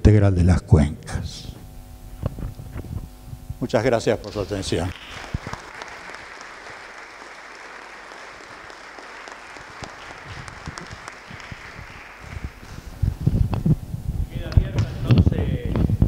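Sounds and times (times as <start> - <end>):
audience applauding: 4.8 - 13.0.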